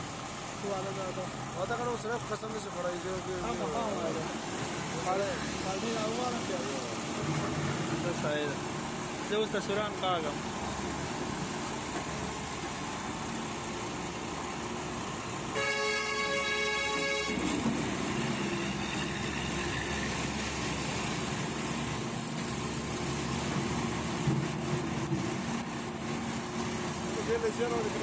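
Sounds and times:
excavator diesel engine running: 0:00.0 - 0:28.0
vehicle horn: 0:15.5 - 0:17.6.

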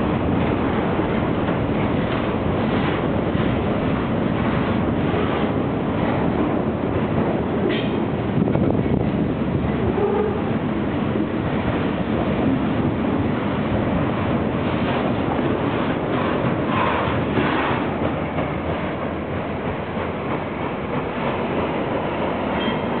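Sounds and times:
freight train cars rolling past: 0:00.0 - 0:23.0.

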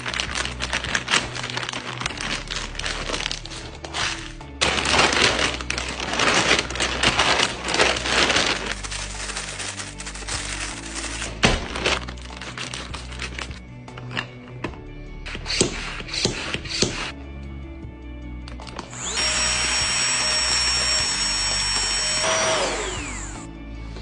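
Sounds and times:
plastic bag crinkling: 0:00.0 - 0:13.6
background music: 0:00.0 - 0:24.0.

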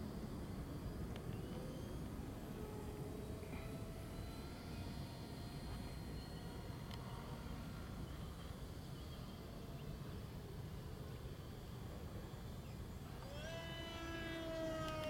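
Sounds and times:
model plane motor whining: 0:13.1 - 0:15.0.

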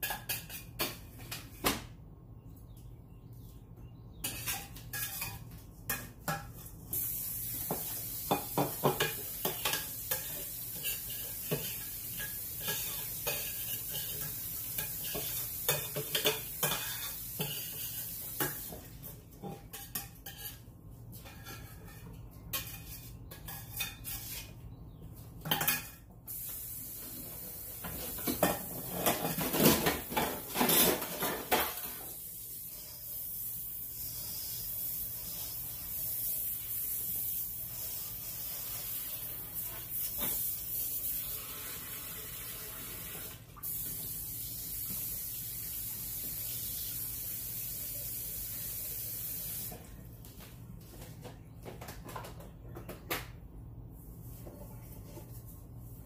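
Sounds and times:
cookware clattering: 0:00.0 - 0:01.1, 0:08.2 - 0:18.7
steady hiss: 0:06.9 - 0:16.0.

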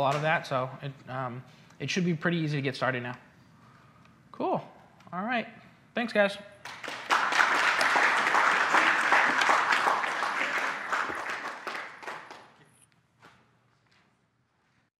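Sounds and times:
audience applauding: 0:06.6 - 0:12.6.

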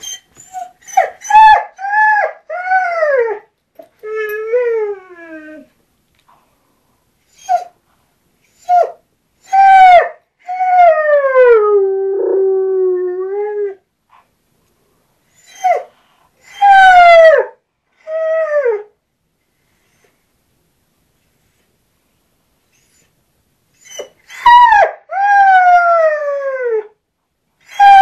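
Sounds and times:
hound howling and yipping: 0:00.0 - 0:03.5, 0:27.7 - 0:28.0.

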